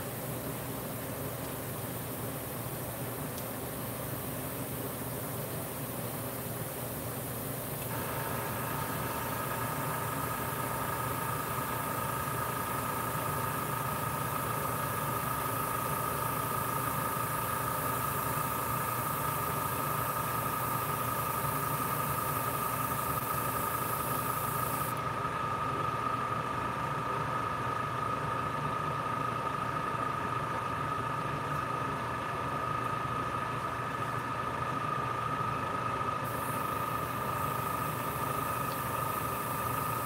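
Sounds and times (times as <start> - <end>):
small electric motor humming: 7.9 - 25.0, 36.3 - 40.0.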